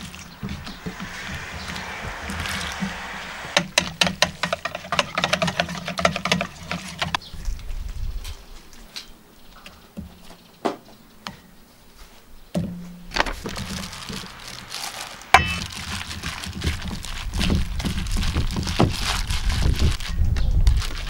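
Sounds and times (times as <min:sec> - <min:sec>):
sharp clink: 0:15.4 - 0:15.6.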